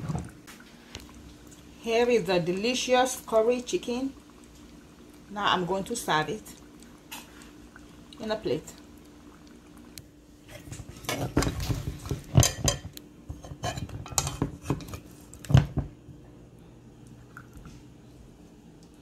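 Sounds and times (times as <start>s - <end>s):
metal spoon scraping a pot: 12.4s - 15.0s.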